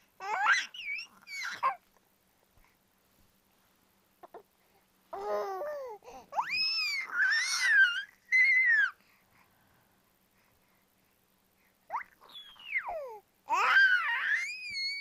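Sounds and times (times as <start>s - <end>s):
baby babbling and squealing: 0.2s - 1.8s, 5.2s - 9.0s, 11.9s - 15.0s.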